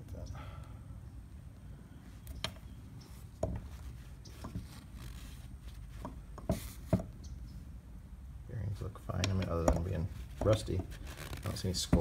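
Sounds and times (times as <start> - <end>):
rustle: 0.0 - 7.8, 8.5 - 12.0.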